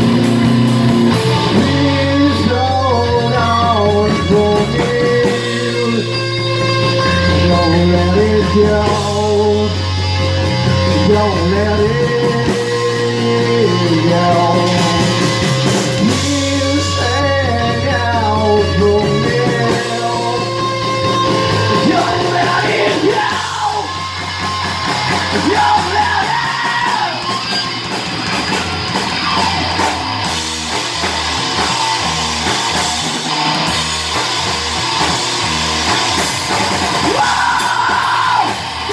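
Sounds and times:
bass guitar: 0:00.0 - 0:38.9
drum kit: 0:00.0 - 0:38.9
electric guitar: 0:00.0 - 0:38.9
person singing: 0:01.5 - 0:06.4, 0:07.1 - 0:09.9, 0:10.8 - 0:20.6, 0:21.7 - 0:24.1, 0:25.3 - 0:27.4, 0:37.0 - 0:38.9.

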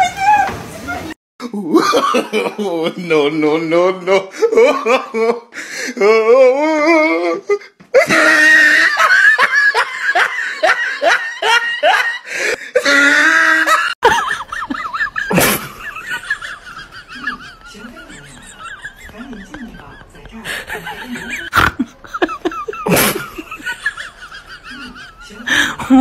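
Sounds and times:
person laughing hard: 0:01.4 - 0:03.2, 0:08.0 - 0:26.0.

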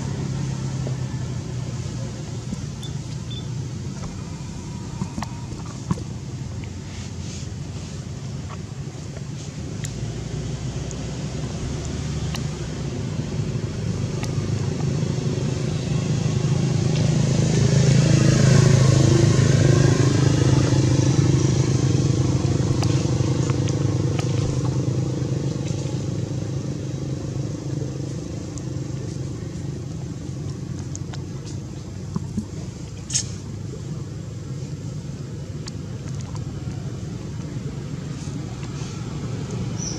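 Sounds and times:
vehicle engine passing by: 0:09.9 - 0:30.9.

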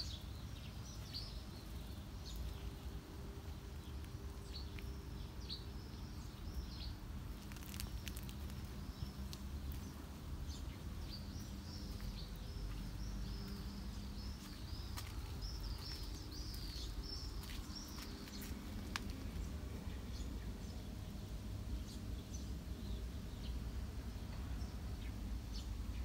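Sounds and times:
low outdoor rumble: 0:00.0 - 0:26.0
small bird chirping: 0:03.8 - 0:20.8.

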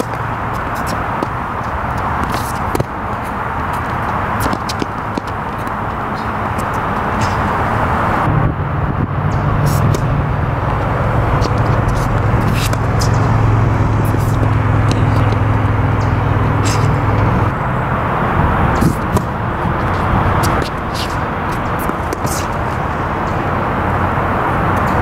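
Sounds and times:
tennis balls struck by rackets: 0:00.0 - 0:08.3, 0:09.3 - 0:17.6, 0:18.3 - 0:25.0
outdoor noise haze: 0:00.0 - 0:25.0
vehicle engine humming: 0:00.0 - 0:25.0.

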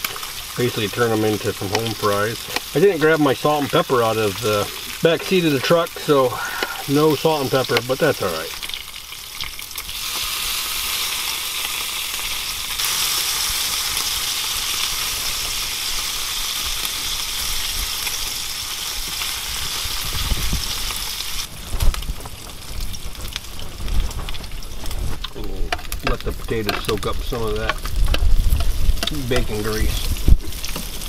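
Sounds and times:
tongs turning bacon: 0:00.0 - 0:21.3, 0:25.1 - 0:30.9
bacon sizzling in a skillet: 0:00.0 - 0:31.0.

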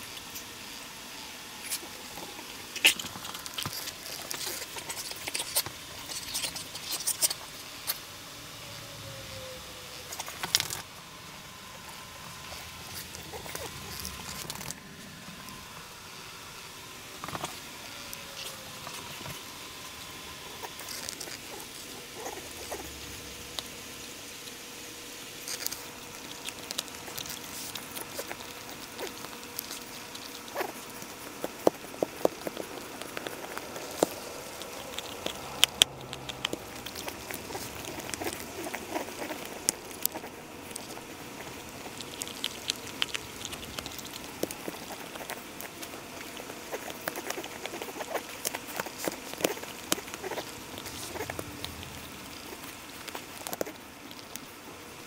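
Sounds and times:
dog chewing and gnawing: 0:01.6 - 0:08.0, 0:11.7 - 0:15.8, 0:17.2 - 0:17.7, 0:18.4 - 0:24.7, 0:25.3 - 0:55.0
teeth scraping and clicking: 0:01.7 - 0:08.0, 0:12.5 - 0:14.8, 0:20.5 - 0:23.7, 0:25.4 - 0:54.5.

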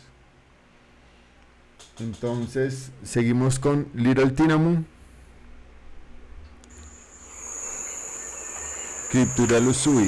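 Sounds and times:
forest background hiss: 0:06.7 - 0:10.0
high-pitched insect trill: 0:06.7 - 0:10.0.

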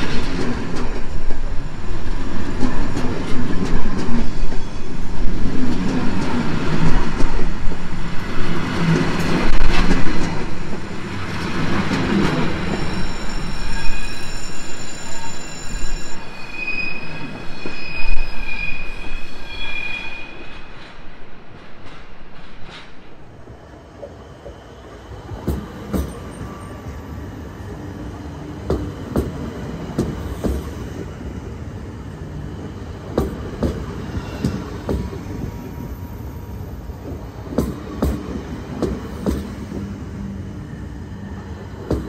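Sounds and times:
train rumbling over rails: 0:00.0 - 0:42.0
train wheel squeal: 0:04.2 - 0:05.2, 0:12.2 - 0:20.9, 0:25.5 - 0:27.8, 0:33.6 - 0:36.2.

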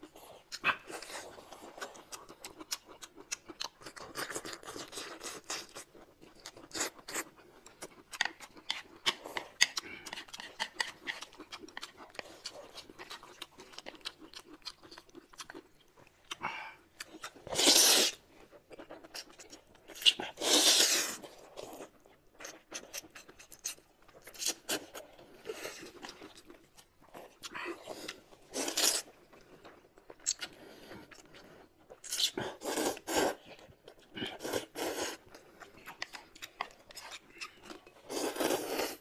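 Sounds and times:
chewing with mouth clicks: 0:00.0 - 0:39.0
loud noodle slurp: 0:17.5 - 0:18.2, 0:20.4 - 0:21.2, 0:38.1 - 0:39.0.

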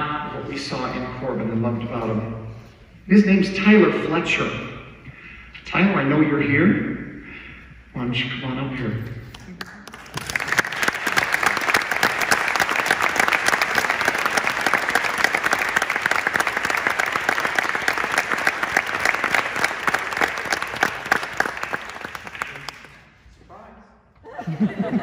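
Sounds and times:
audience applauding: 0:09.4 - 0:23.1.

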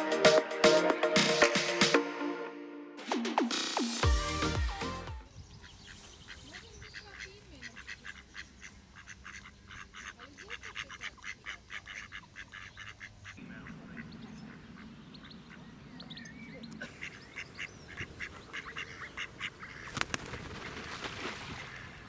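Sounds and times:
ducks giving raspy notes: 0:05.6 - 0:21.0.

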